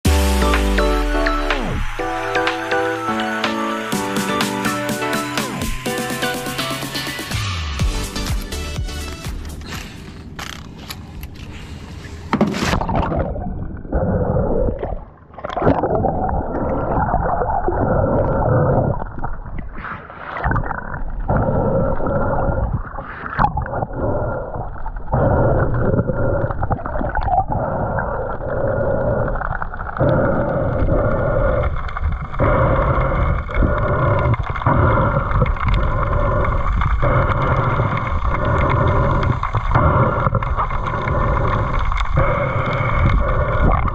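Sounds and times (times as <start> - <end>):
water rushing underwater: 0.4 - 3.4, 12.5 - 43.9.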